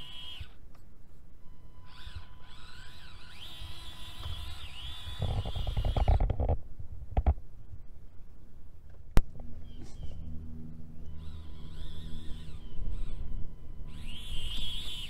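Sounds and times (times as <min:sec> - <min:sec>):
small motor and gears whining: 0:00.0 - 0:06.6, 0:09.3 - 0:15.0
low rumbling: 0:04.8 - 0:15.0.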